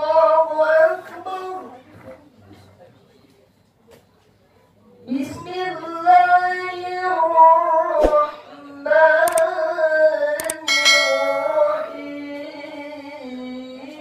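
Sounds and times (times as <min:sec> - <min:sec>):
sharp clicks: 0:09.2 - 0:09.5, 0:10.4 - 0:10.7
bright bell chime: 0:10.6 - 0:12.3.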